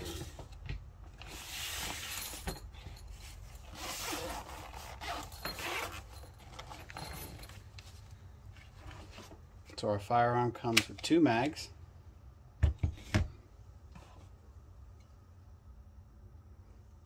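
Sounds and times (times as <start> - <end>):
handling rustle: 0.0 - 9.6
zipper pulled open: 3.6 - 6.9.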